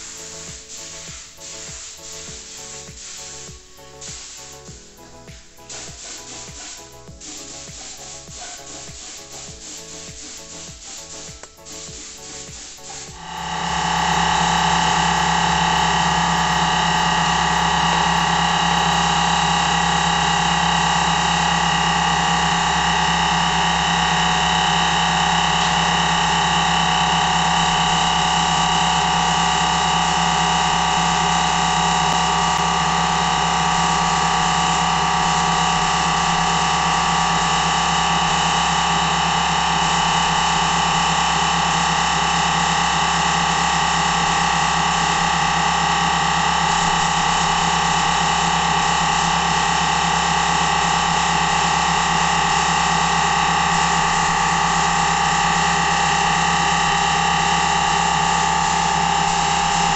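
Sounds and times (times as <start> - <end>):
air compressor humming: 0.0 - 59.9
spray gun hissing: 0.0 - 59.9.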